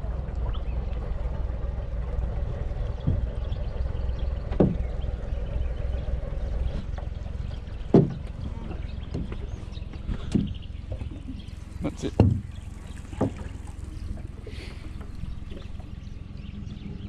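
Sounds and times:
low rumble: 0:00.0 - 0:17.0
knocks on boat: 0:02.9 - 0:03.6, 0:04.5 - 0:05.0, 0:07.9 - 0:13.8.

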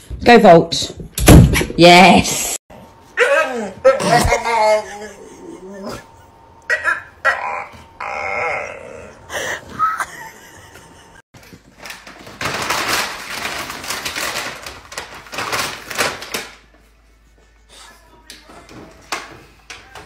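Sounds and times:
plastic bag crinkling: 0:11.4 - 0:16.7.

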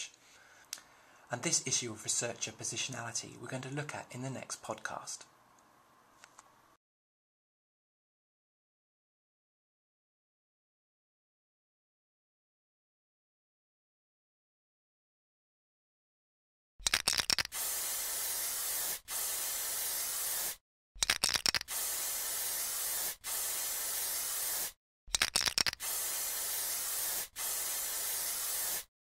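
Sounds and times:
spray can ball rattling: 0:16.9 - 0:28.9
spray can hissing: 0:16.9 - 0:28.9.

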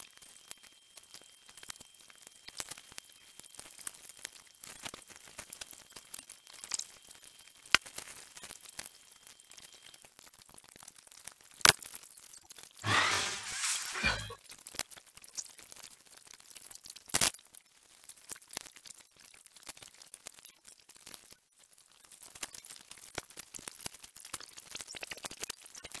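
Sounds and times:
pencil scratching on paper: 0:12.8 - 0:14.4.

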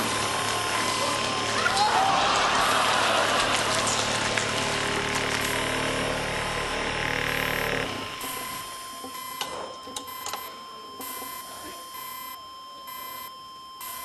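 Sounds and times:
buzz saw grinding: 0:02.4 - 0:08.6
steady high beep: 0:07.3 - 0:14.0.

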